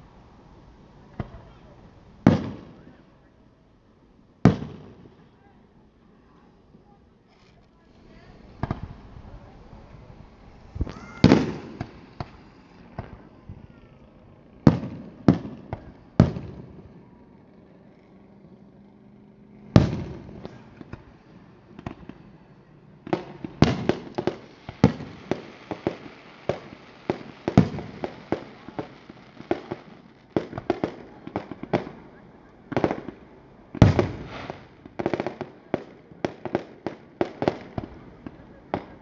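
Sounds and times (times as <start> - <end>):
fireworks bangs: 1.1 - 3.0, 4.4 - 5.4, 7.9 - 17.6, 19.1 - 39.0
fireworks crackle: 6.2 - 17.9, 19.8 - 39.0.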